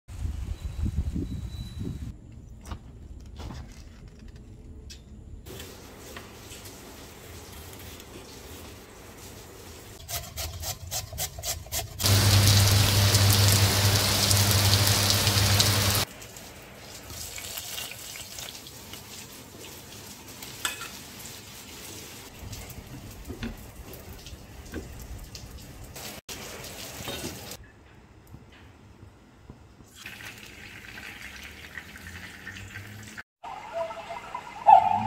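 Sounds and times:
soft sizzling: 12.0s - 16.1s.

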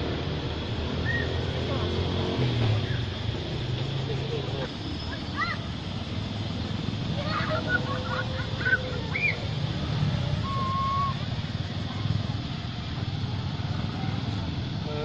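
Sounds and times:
macaques chirping: 7.2s - 11.4s.

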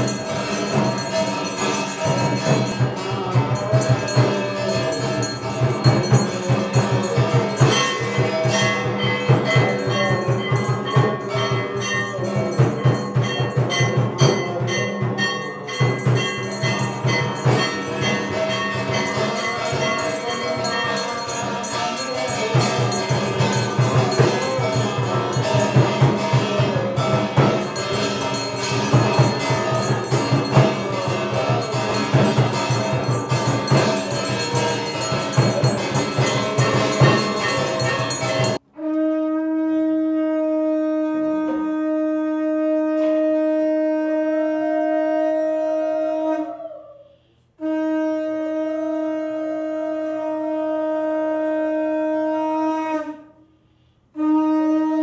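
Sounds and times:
dense drumming: 0.0s - 38.6s
hand bell ringing: 0.0s - 38.6s
conch shell blown: 0.0s - 55.0s.

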